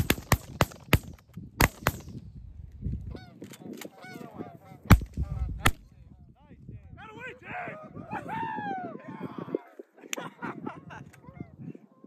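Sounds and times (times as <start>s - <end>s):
shotgun shots: 0.0s - 2.2s
geese honking: 3.1s - 5.6s.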